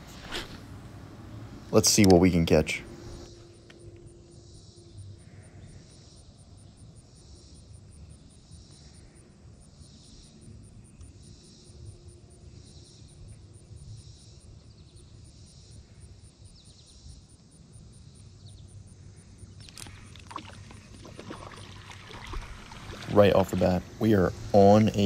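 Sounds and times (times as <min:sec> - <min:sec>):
high-pitched insect call: 0:03.0 - 0:25.0
fishing reel clicks and rustling: 0:19.6 - 0:20.9.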